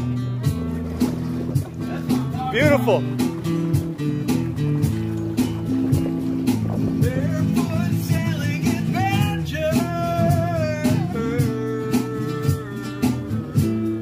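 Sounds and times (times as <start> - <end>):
strummed acoustic guitar: 0.0 - 14.0
steady beat: 1.6 - 11.7
person singing: 7.0 - 13.8.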